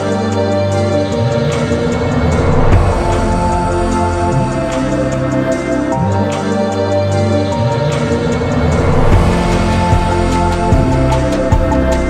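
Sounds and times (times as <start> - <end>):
slow sustained chords: 0.0 - 12.0
light ticking beat: 9.1 - 12.0.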